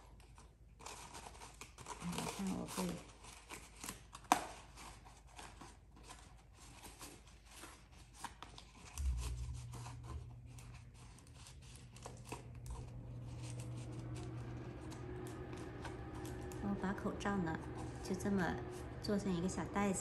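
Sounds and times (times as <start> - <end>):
paper and mask rustling: 0.1 - 9.8
low steady hum: 9.0 - 20.0.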